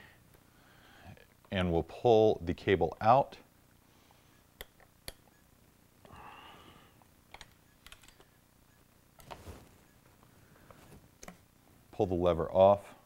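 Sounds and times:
soft scrape: 9.3s - 10.0s.

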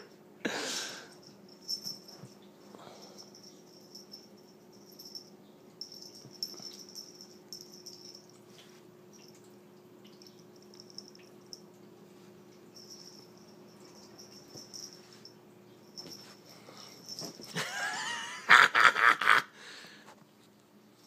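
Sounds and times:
faint steady hum: 0.0s - 21.0s
metal collar tag jingling: 1.5s - 2.4s, 3.0s - 8.4s, 12.8s - 17.7s.

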